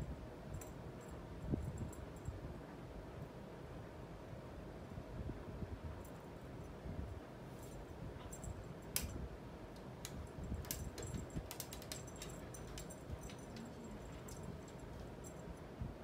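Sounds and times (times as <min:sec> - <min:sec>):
small metallic jingles: 0:10.2 - 0:15.8.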